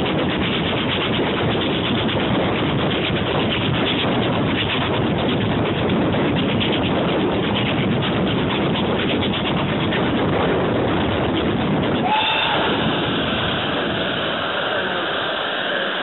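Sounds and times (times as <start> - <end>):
steam train rushing: 0.0 - 16.0
whistle-like tone: 12.0 - 12.9.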